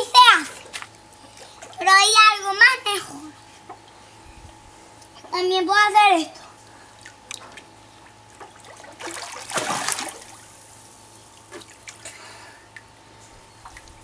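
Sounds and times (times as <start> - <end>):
water splashing and lapping: 8.3 - 10.6.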